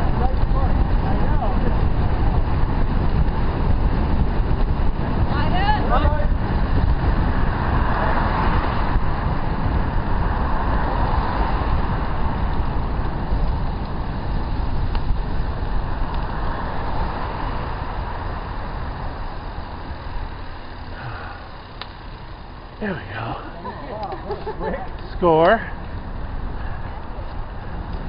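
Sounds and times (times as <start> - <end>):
wind rushing over microphone: 0.0 - 28.0
bike tyre hiss: 6.4 - 23.6.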